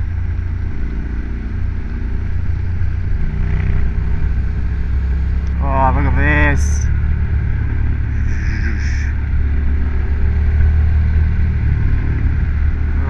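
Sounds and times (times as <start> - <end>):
motorcycle engine running: 0.0 - 13.0
road noise: 0.0 - 13.0.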